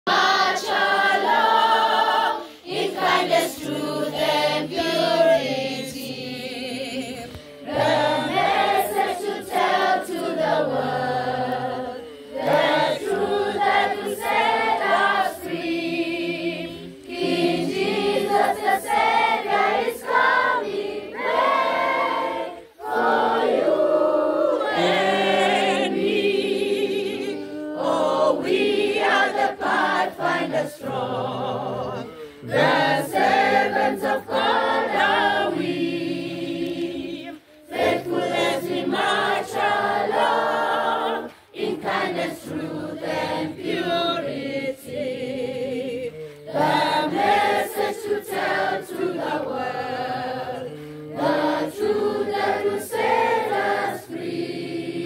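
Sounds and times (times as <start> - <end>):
children's choir singing: 0.1 - 55.0.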